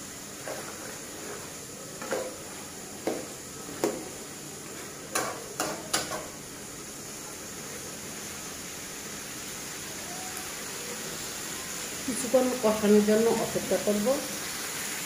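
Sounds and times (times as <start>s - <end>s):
food sizzling: 0.0s - 15.0s
metal spatula scraping a pan: 0.3s - 3.3s.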